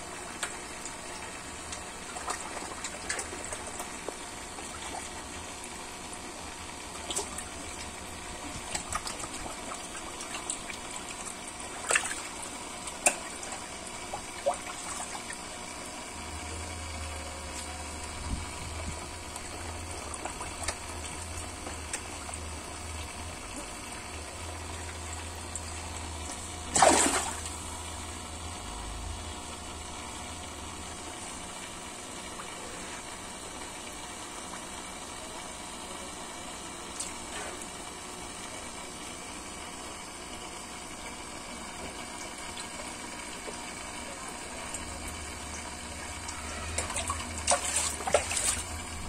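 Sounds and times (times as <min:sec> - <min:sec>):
water churning and splashing: 0:00.3 - 0:06.2, 0:06.9 - 0:15.7, 0:26.5 - 0:27.7, 0:46.4 - 0:49.0
loud splash: 0:26.7 - 0:27.5, 0:46.8 - 0:48.6.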